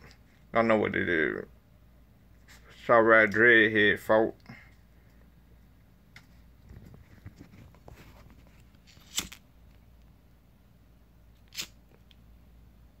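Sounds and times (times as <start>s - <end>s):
faint rustling: 4.6s - 10.1s
sharp crackles: 8.8s - 9.4s.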